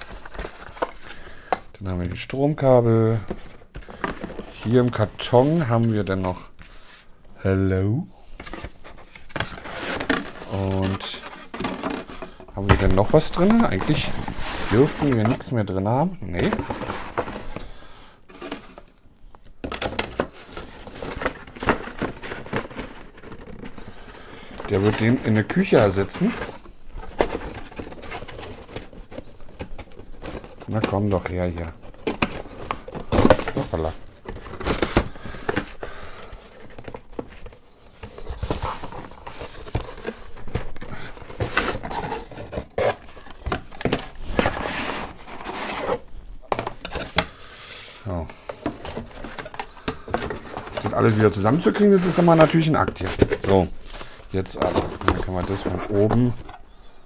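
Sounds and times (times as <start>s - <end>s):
cardboard box rustling and scraping: 8.4s - 15.5s, 16.4s - 17.7s, 19.7s - 56.6s.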